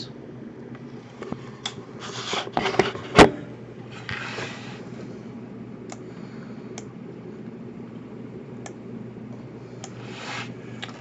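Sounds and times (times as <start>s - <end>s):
handling rubbing and scraping: 1.4s - 3.2s.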